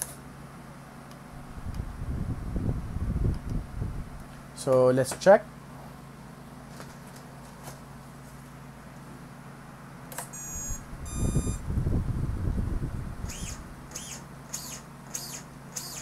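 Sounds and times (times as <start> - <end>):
click: 3.3 - 3.6
short electronic beeps: 10.3 - 11.6
short high chirps: 10.4 - 11.6.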